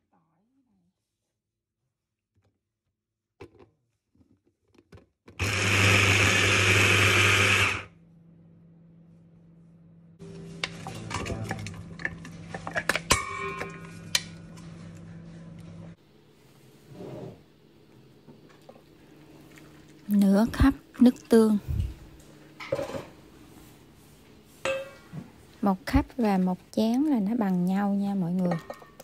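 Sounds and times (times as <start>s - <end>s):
hand blender chopping: 5.3s - 7.9s.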